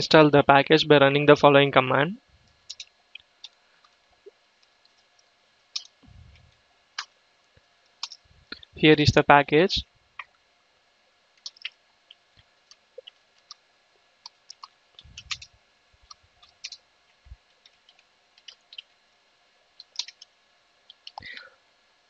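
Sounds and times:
keyboard keys clicking: 14.5 - 15.5.

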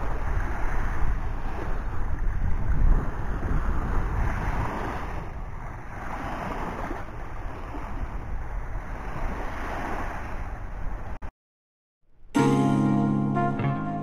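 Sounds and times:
small waves washing onto sand: 0.0 - 11.2
wind rumbling on microphone: 0.0 - 11.3.

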